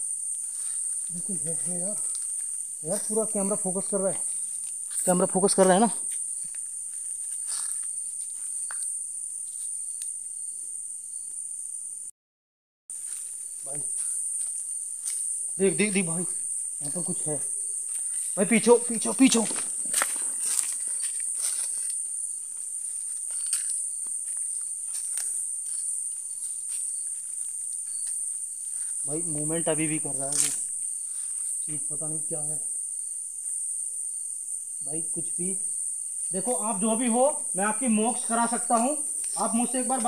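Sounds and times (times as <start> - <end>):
crickets trilling: 0.0 - 12.1, 12.9 - 40.0
insects chirring: 0.0 - 12.1, 12.9 - 40.0
faint footsteps: 1.9 - 9.8, 12.9 - 16.0, 17.8 - 29.6.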